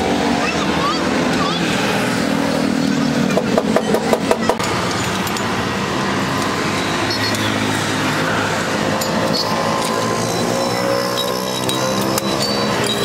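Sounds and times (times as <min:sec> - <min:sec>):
street traffic noise: 0:00.0 - 0:13.0
sharp knocks: 0:03.4 - 0:04.6.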